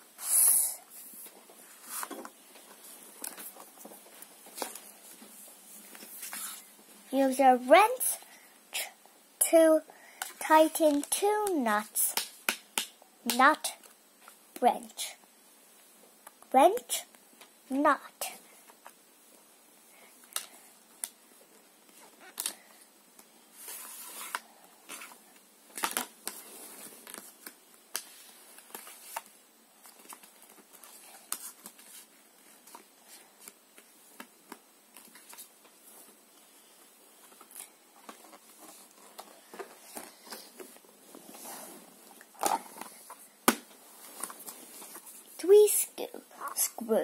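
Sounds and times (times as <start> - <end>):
cardboard piece scraping on pages: 1.0 - 2.3, 5.9 - 6.7, 23.6 - 25.2
page turning: 23.6 - 36.0.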